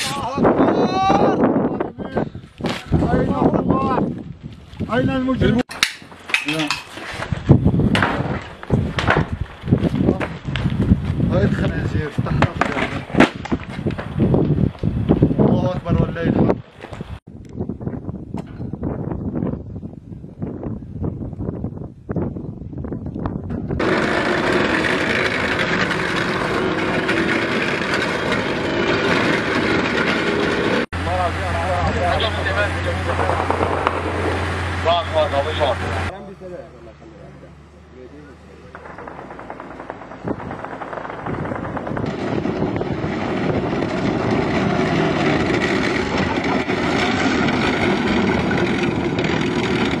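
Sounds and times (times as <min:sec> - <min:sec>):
vehicle engines rumbling: 0:23.8 - 0:50.0.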